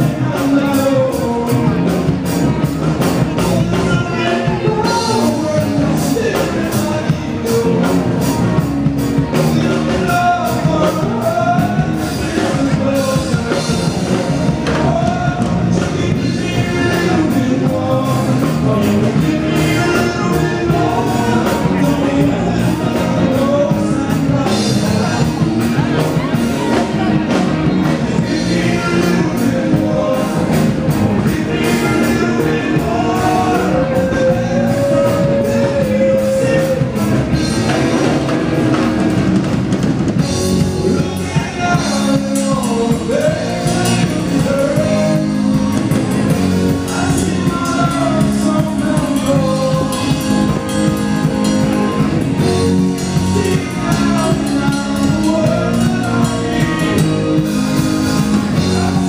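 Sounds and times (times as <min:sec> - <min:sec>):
rock music with singer: 0:00.0 - 0:59.0
steady drum beat: 0:00.0 - 0:59.0.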